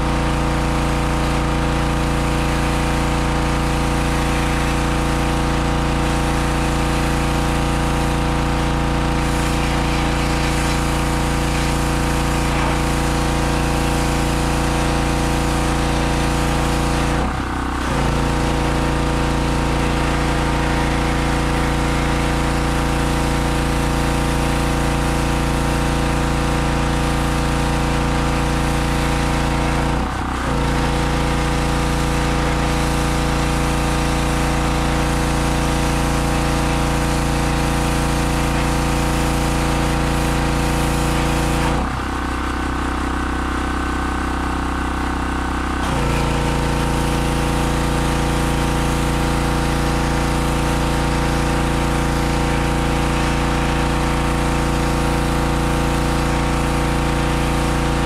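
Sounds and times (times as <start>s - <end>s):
pressure washer engine running: 0.0s - 58.0s
water spray hissing: 9.2s - 15.8s.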